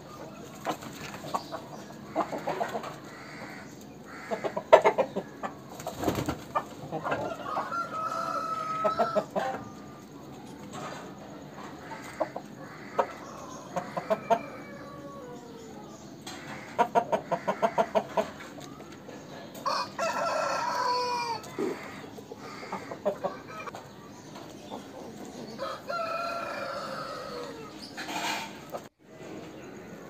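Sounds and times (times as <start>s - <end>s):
roosters clucking: 0.0s - 30.0s
rooster crowing: 7.3s - 9.5s, 19.6s - 23.7s, 25.6s - 27.8s.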